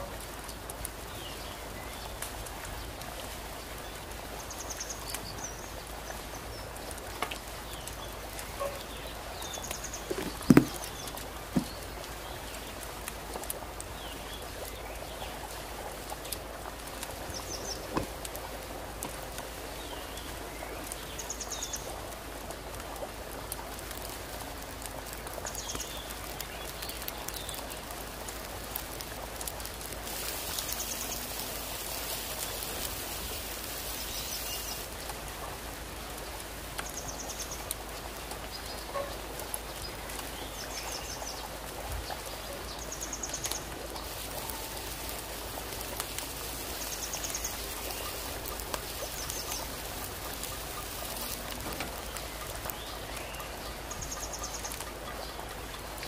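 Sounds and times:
food sizzling: 0.0s - 56.0s
sharp knocks: 10.1s - 10.9s.

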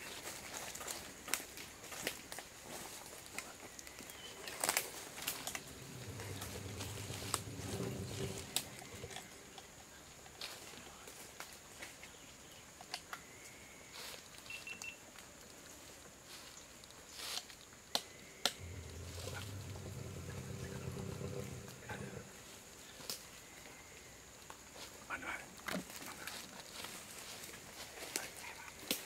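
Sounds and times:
low rumble: 5.3s - 9.4s, 18.6s - 22.6s.

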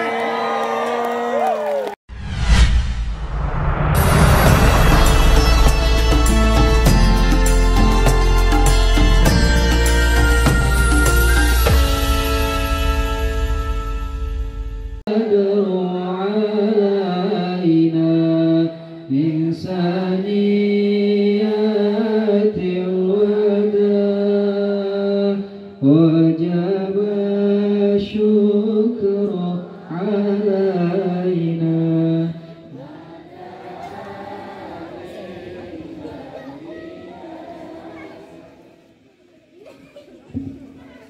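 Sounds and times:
background music: 4.0s - 15.0s.

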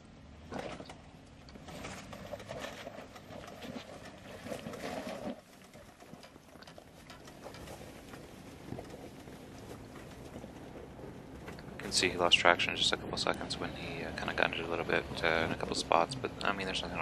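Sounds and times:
tires grinding over rock: 0.1s - 17.0s
off-road vehicle engine revving: 7.3s - 17.0s.

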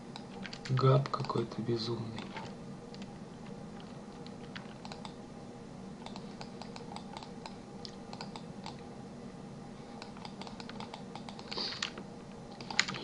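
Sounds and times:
low electrical hum: 0.0s - 13.0s
keyboard keys clicking: 0.2s - 1.4s, 2.2s - 5.2s, 10.0s - 13.0s.

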